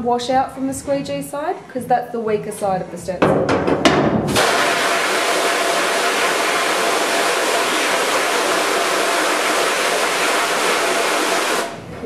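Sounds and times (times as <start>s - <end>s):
water spraying from hose: 4.3s - 11.8s.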